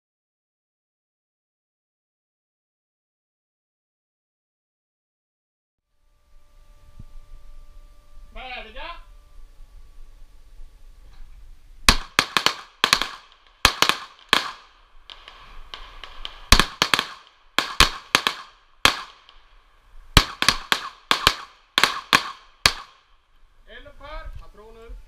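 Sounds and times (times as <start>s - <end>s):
pistol shots with echo: 11.9s - 19.5s, 20.2s - 23.1s.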